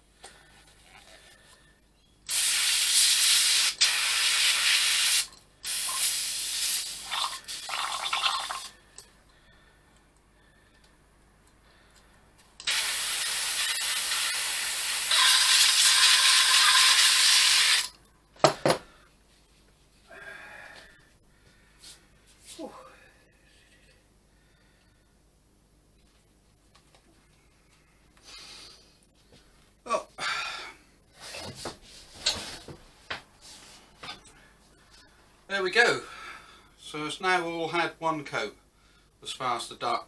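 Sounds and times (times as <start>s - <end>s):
paint spray gun hissing: 2.3s - 7.7s, 12.6s - 17.9s.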